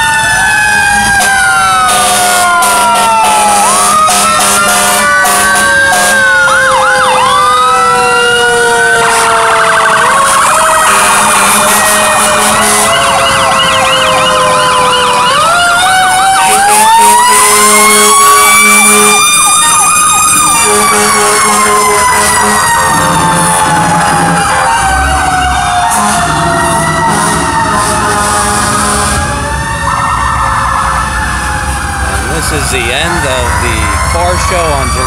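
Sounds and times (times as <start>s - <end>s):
fire truck sirens: 0.0s - 35.0s
low-pitched horn blasts: 10.8s - 13.2s, 16.4s - 19.2s, 20.6s - 23.6s, 25.9s - 29.4s.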